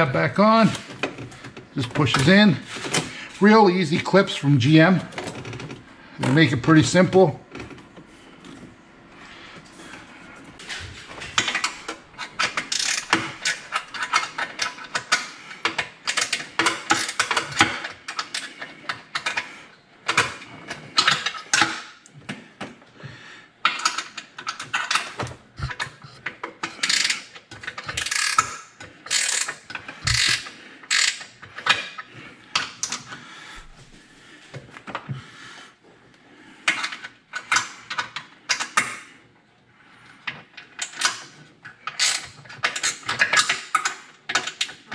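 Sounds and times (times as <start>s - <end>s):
hand ratchet clicking: 11.4s - 18.5s, 26.6s - 31.8s, 41.8s - 44.7s.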